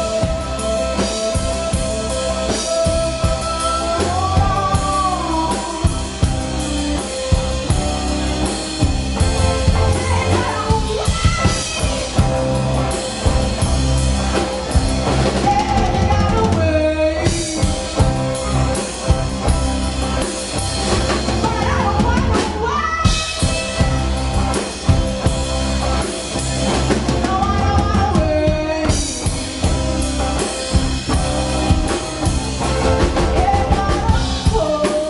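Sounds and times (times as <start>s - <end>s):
woman singing: 0.0s - 7.4s, 9.6s - 12.8s, 15.2s - 18.4s, 21.1s - 24.4s, 27.0s - 35.0s
bass guitar: 0.0s - 35.0s
drum kit: 0.0s - 35.0s
guitars: 0.0s - 35.0s.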